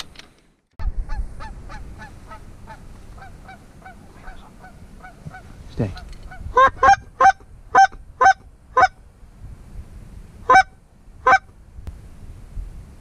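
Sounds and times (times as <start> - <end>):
goose honking: 1.4 - 9.0, 10.5 - 11.5.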